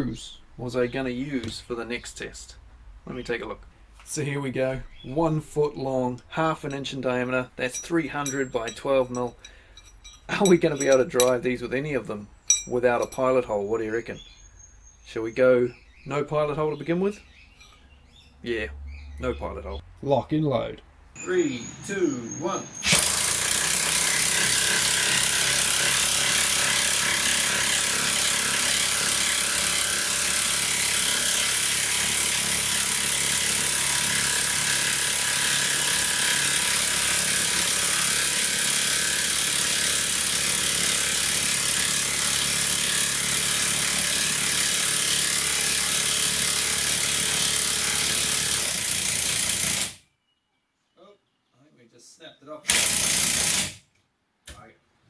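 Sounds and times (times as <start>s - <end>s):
impact wrench hammering: 7.6s - 11.4s, 12.5s - 13.3s, 22.9s - 35.9s.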